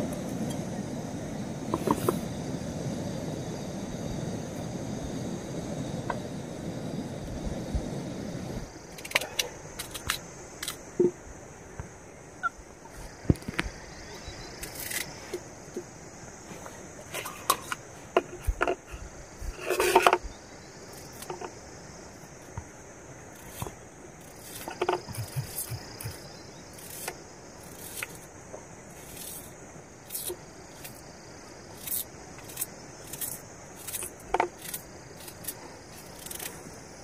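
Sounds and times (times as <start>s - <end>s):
crickets chirping: 0.0s - 37.0s
rustle: 8.6s - 37.0s.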